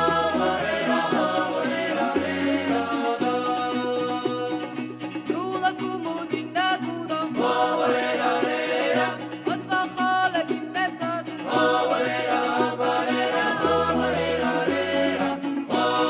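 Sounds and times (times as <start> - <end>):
mixed voices singing in parts: 0.0 - 5.0, 7.2 - 9.8, 11.2 - 16.0
bass: 0.0 - 16.0
plucked lutes: 0.0 - 16.0.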